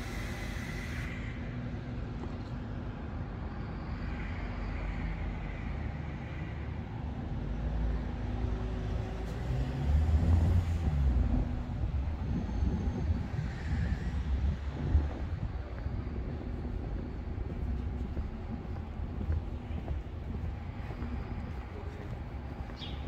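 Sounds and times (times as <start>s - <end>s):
traffic engine hum: 0.0s - 23.0s
vehicle passing: 8.2s - 15.7s.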